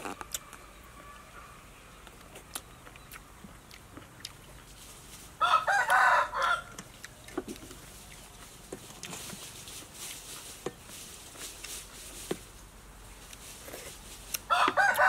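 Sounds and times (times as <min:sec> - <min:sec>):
rooster crowing: 0:00.4 - 0:01.6, 0:05.4 - 0:06.8, 0:14.5 - 0:15.0.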